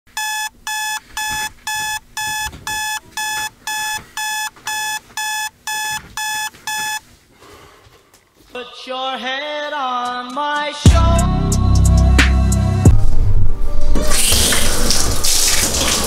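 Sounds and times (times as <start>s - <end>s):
alarm beeping: 0.1s - 7.0s.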